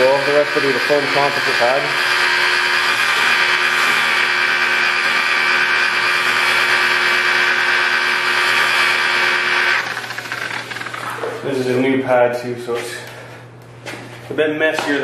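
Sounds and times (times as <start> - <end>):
car polisher motor whine: 0.0 - 11.4.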